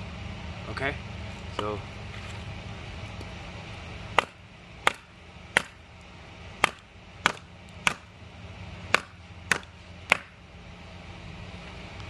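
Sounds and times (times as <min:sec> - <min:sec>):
hatchet chopping wood: 0:04.1 - 0:05.8, 0:06.6 - 0:08.1, 0:08.9 - 0:10.4.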